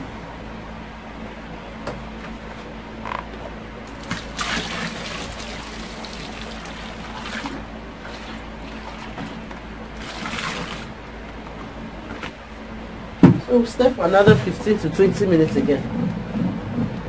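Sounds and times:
liquid pouring into bucket: 0:03.9 - 0:10.9.

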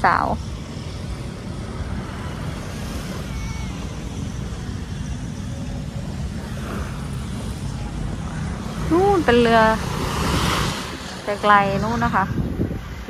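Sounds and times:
wind on microphone: 0:00.0 - 0:13.0
surf washing onto beach: 0:08.6 - 0:13.0.

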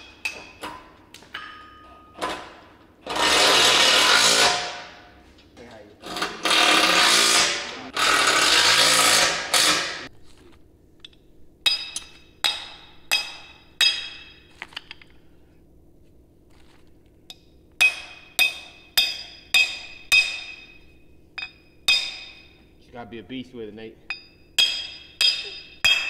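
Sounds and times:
hammer ringing on steel plate: 0:11.7 - 0:14.5, 0:17.8 - 0:22.6, 0:24.0 - 0:26.0.

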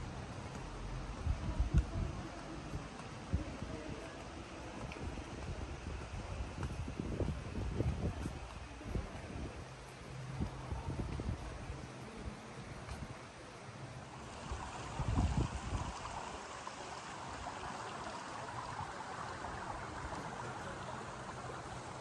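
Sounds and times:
wind rumble on microphone: 0:00.0 - 0:13.3, 0:14.1 - 0:22.0
stream water rushing: 0:11.7 - 0:22.0.

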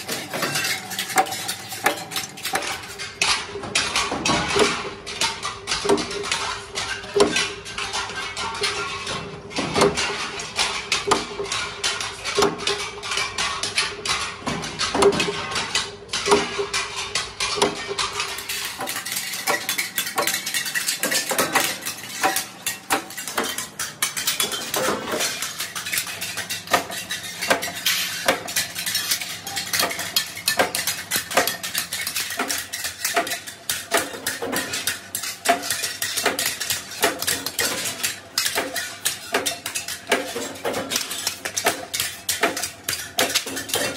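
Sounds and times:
sheet steel clinks: 0:00.0 - 0:03.1, 0:17.2 - 0:43.9
metal blades clanking: 0:00.0 - 0:05.3, 0:14.7 - 0:43.9
metallic knocks: 0:08.4 - 0:43.9.

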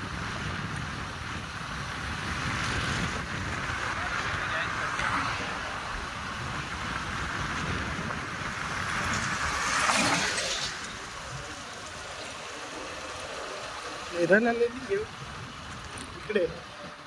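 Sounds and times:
vehicle passing: 0:02.5 - 0:17.0.

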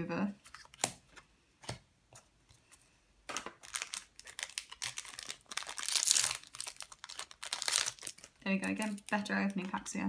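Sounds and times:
foil wrapper crinkling and tearing: 0:03.4 - 0:09.7.

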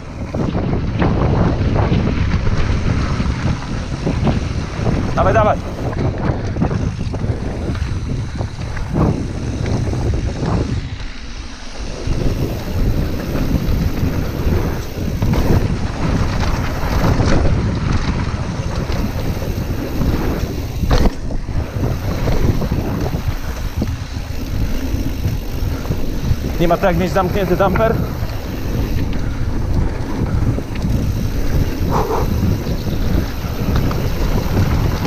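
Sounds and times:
tyre and drivetrain rumble: 0:00.0 - 0:35.0
wind buffeting microphone: 0:00.0 - 0:35.0
bike knocking over stones: 0:15.2 - 0:23.2.

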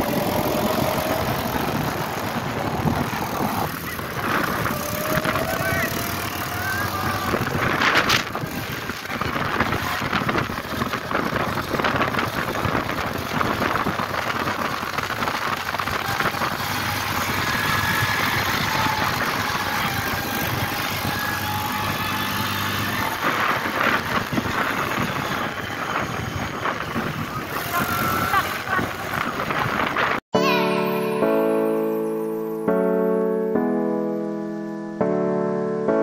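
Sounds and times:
continuous rushing noise: 0:00.0 - 0:30.2
quad bike engine running: 0:00.0 - 0:30.2.

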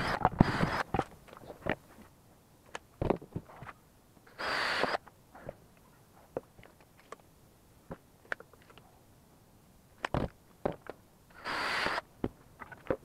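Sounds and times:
cordless drill boring into wood: 0:00.0 - 0:00.8, 0:04.3 - 0:05.0, 0:11.3 - 0:12.0.

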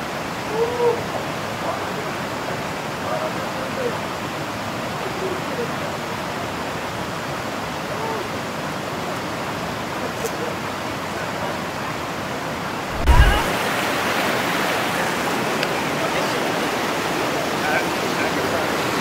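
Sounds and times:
river water rushing: 0:00.0 - 0:19.0
short low thump: 0:12.9 - 0:13.5.

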